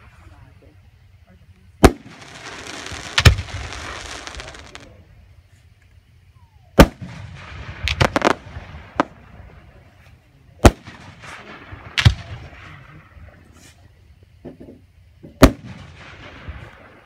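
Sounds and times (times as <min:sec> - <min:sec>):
firework shells booming: 0:01.7 - 0:05.0, 0:06.7 - 0:10.0, 0:10.6 - 0:13.6, 0:14.4 - 0:17.0
firework crackling hiss: 0:01.7 - 0:06.1, 0:06.7 - 0:10.0.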